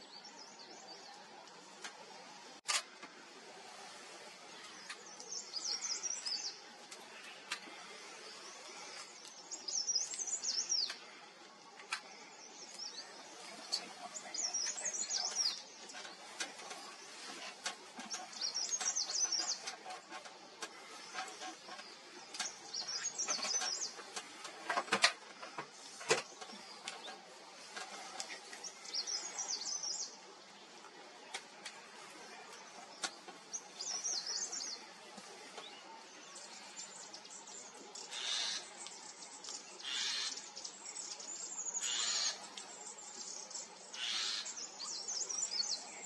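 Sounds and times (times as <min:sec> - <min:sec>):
songbird twittering: 0:36.0 - 0:46.0.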